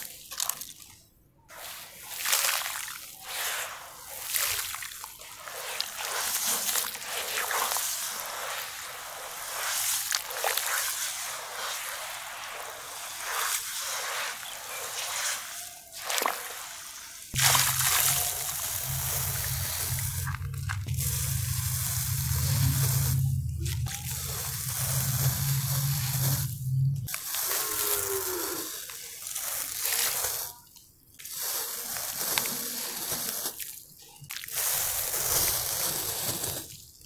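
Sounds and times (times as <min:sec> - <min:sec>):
hands sloshing wet dirt in water: 0:00.0 - 0:27.7
grit pouring into water: 0:01.5 - 0:27.9
low hum: 0:17.4 - 0:27.1.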